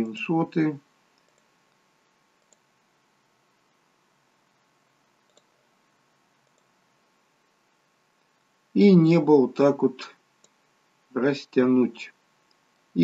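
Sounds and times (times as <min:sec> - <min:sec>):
computer mouse clicks: 0:01.1 - 0:02.7, 0:05.2 - 0:05.7, 0:06.4 - 0:06.8, 0:10.4 - 0:10.6.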